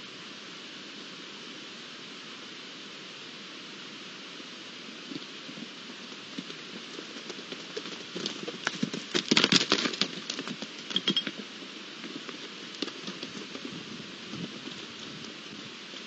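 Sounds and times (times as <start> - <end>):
hooves striking stony ground: 5.0 - 16.0.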